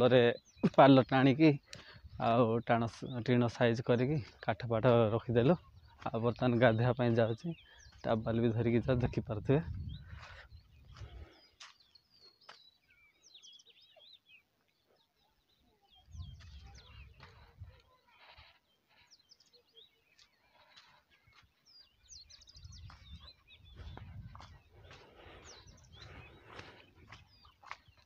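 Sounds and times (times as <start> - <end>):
small birds chirping: 0.0 - 28.0
wind rumbling on microphone: 8.1 - 11.3, 16.1 - 17.8, 22.1 - 27.5.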